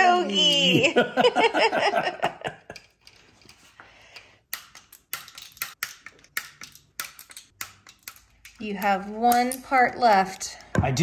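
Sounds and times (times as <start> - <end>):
hand tools clicking and tapping: 2.4 - 10.9.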